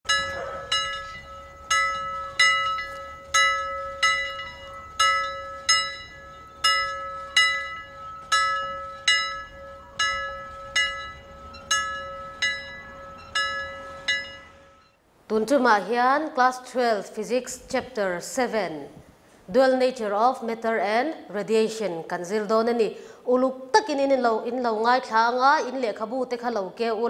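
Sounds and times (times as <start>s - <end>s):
steady held tone: 0.0s - 15.0s
bell-like chimes jingle: 0.1s - 15.0s.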